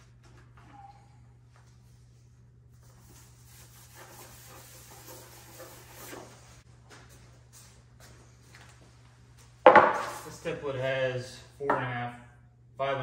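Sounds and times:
person moving on concrete floor: 0.0 - 3.4, 5.0 - 10.5.

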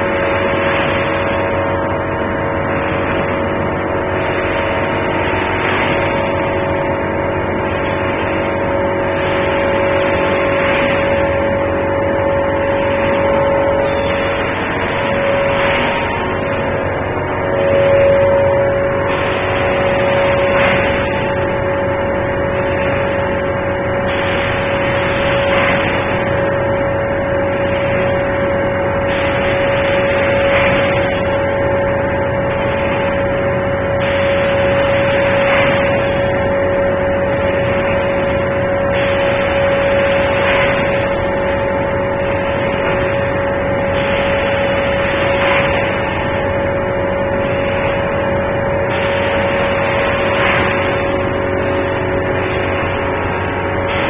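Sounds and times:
machine hum with held tone: 0.0 - 54.0
hissing surge: 9.2 - 26.4.

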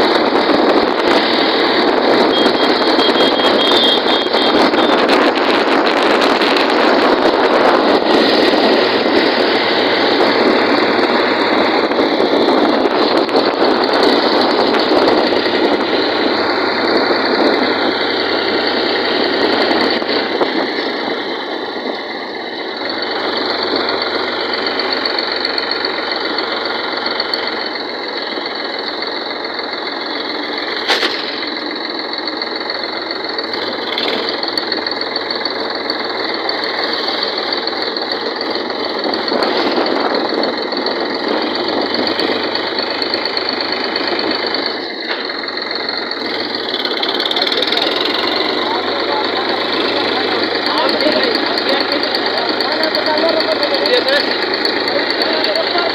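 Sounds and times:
tractor diesel engine running: 0.0 - 55.9
sharp click: 30.8 - 31.5.

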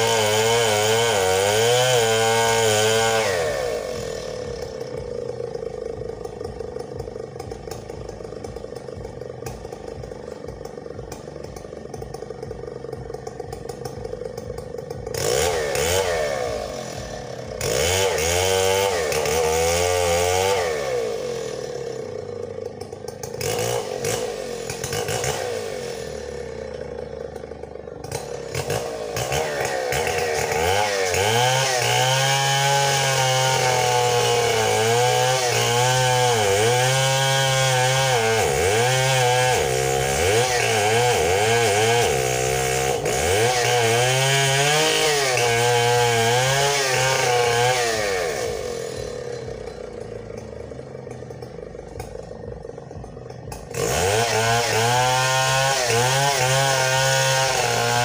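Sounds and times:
chainsaw cutting tree trunk: 0.0 - 58.0.

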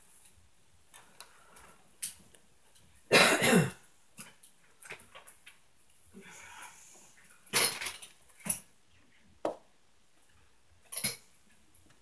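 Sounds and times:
person coughing: 3.1 - 3.8.

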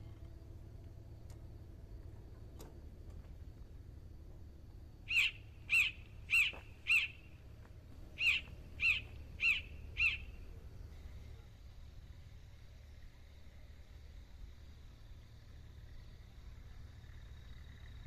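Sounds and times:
faint low hum: 0.0 - 18.0
bird calling short sharp calls: 5.1 - 7.4, 8.2 - 10.4.

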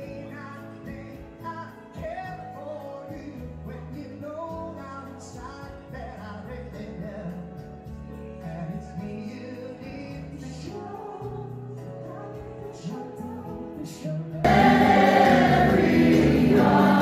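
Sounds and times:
keyboard: 0.0 - 17.0
woman singing into a microphone: 10.8 - 14.4
steady beat: 14.5 - 17.0.

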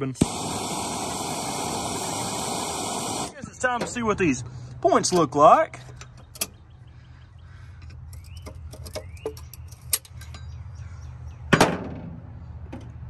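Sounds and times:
low hum: 0.2 - 11.4
clicks and knocks of engine parts: 4.7 - 6.7, 7.7 - 10.6, 11.5 - 13.0.

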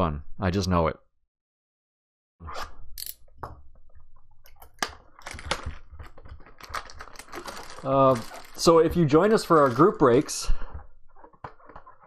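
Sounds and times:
plastic shrink-wrap crinkling: 5.2 - 10.4
cardboard box being handled: 6.6 - 10.4.

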